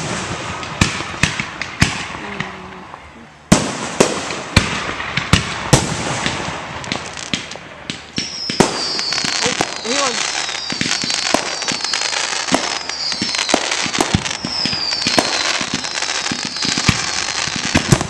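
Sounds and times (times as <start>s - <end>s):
fireworks bursting: 0.0s - 18.0s
fireworks crackle and rumble: 0.0s - 18.0s
high falling whistle: 8.2s - 16.8s.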